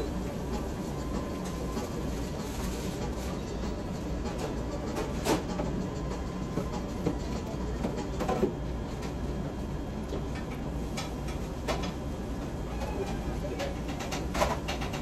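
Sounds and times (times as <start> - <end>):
clicks and rustles of eating: 12.8 - 15.0.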